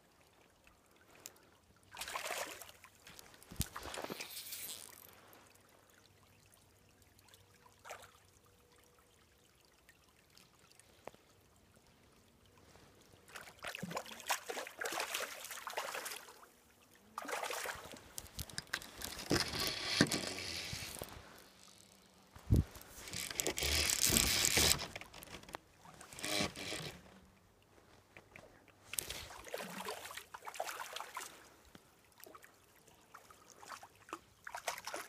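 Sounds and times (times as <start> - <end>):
brook water splashing: 1.9 - 8.4, 13.0 - 26.9, 28.9 - 35.0.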